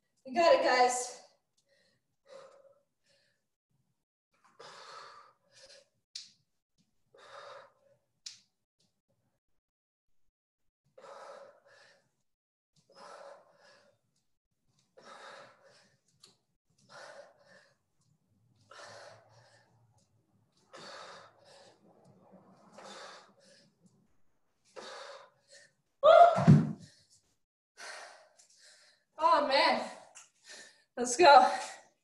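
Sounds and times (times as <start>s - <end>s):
person breathing hard: 11.0s - 12.2s, 12.9s - 14.0s, 15.0s - 16.1s, 16.8s - 18.0s, 18.6s - 21.9s, 22.7s - 23.9s, 27.8s - 29.2s, 30.0s - 30.9s.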